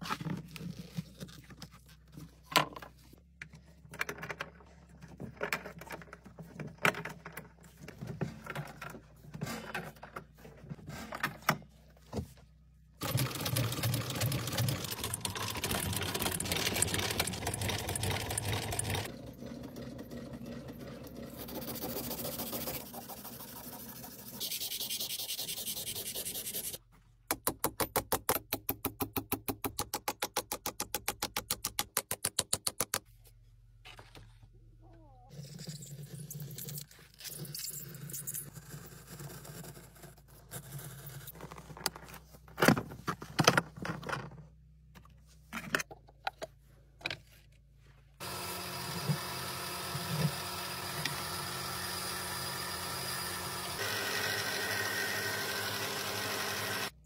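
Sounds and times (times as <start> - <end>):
leather sewing machine running: 13.0 - 24.2, 48.2 - 57.0.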